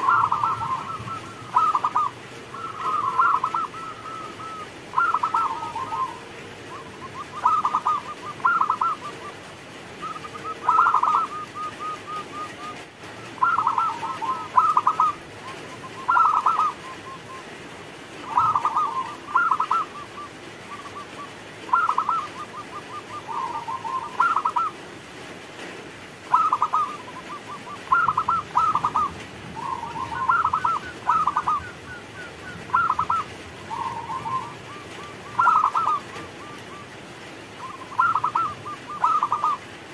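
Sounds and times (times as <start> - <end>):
dove cooing and trilling: 0.0 - 25.2, 26.2 - 39.9.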